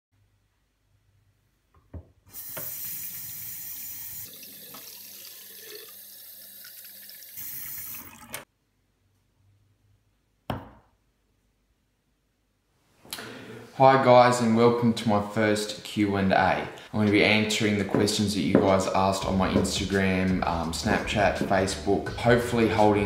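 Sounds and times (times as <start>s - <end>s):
tap water running into sink: 2.3s - 8.4s.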